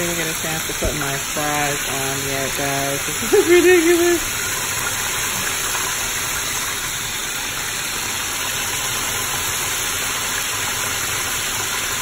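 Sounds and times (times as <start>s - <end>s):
oil sizzling: 0.0s - 12.0s.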